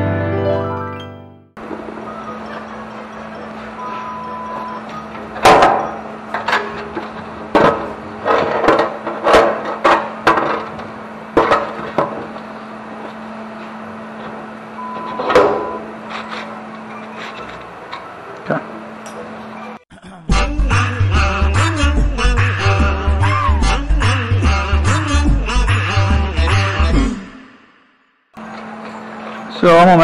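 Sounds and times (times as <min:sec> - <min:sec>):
steady low hum: 0:01.6 - 0:30.0
steel panel knocking and clanking: 0:05.4 - 0:12.2.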